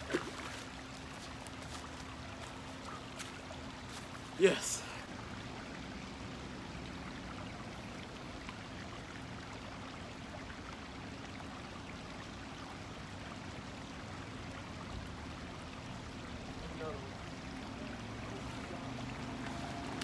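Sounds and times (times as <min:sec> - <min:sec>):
creek water running over rocks: 0:00.0 - 0:20.0.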